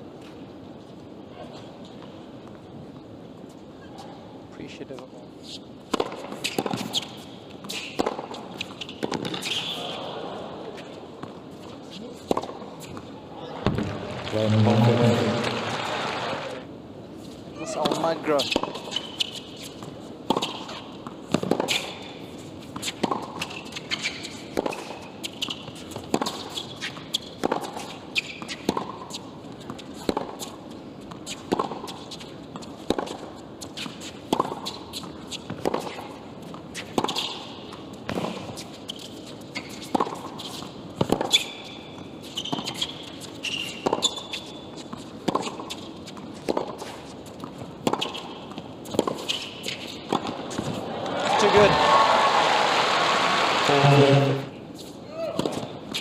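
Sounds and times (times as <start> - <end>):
shoes squeaking on court: 5.4 - 10.0, 17.2 - 51.6, 53.8 - 56.0
tennis ball hit by racket: 5.9 - 7.0, 7.6 - 9.7, 12.2 - 13.0, 20.2 - 22.0, 24.5 - 29.2, 32.8 - 33.2, 33.8 - 36.1, 38.0 - 38.6, 41.0 - 41.5, 43.8 - 44.2, 46.4 - 47.0, 47.8 - 51.7.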